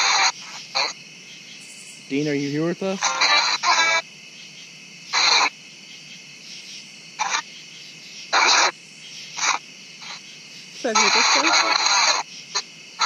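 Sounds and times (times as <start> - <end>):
bursts of radio static: 0.0 - 1.0, 2.1 - 4.1, 5.1 - 5.6, 7.2 - 7.6, 8.3 - 10.2, 10.8 - 13.0
steady hiss: 0.0 - 13.0.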